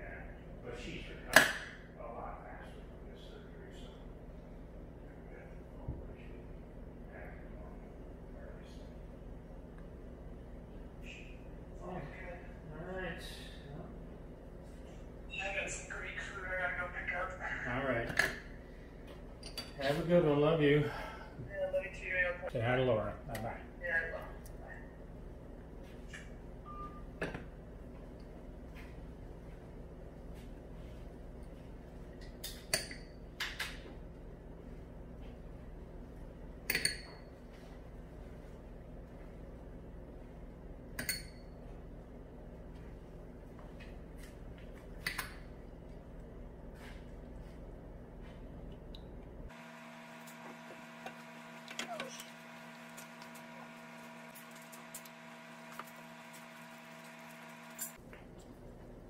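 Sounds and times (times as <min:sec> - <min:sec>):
low steady hum: 0:00.0 - 0:59.0
machine hum with pitched tones: 0:48.2 - 0:58.0.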